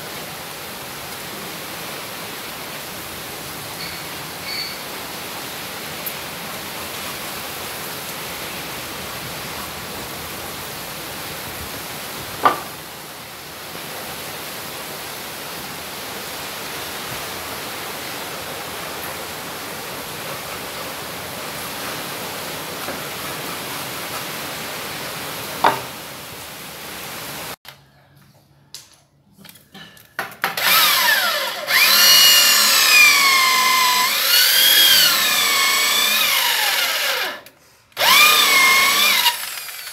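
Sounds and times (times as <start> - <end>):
electric drill boring into wood: 30.6 - 39.9.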